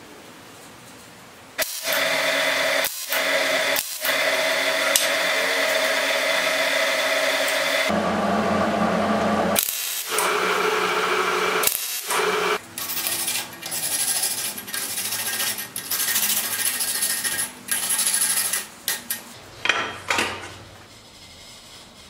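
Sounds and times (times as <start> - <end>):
welding arc crackling: 9.6 - 13.0
wire brush scrubbing metal: 12.8 - 19.2.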